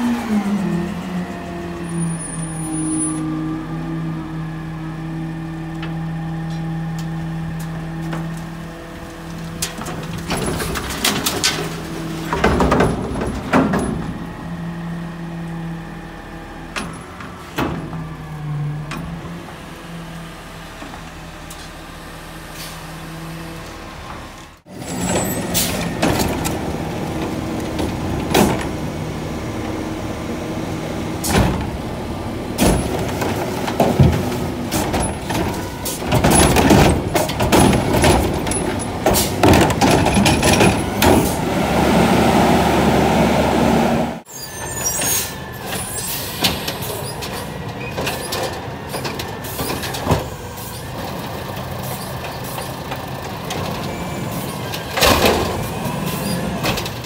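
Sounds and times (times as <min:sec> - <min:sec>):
garbage truck engine and hydraulics: 0:00.0 - 0:57.0
trash banging and clanking: 0:05.8 - 0:14.8, 0:16.7 - 0:19.7, 0:24.0 - 0:29.8, 0:30.6 - 0:41.9, 0:44.6 - 0:57.0
automated arm tipping cart: 0:44.2 - 0:57.0.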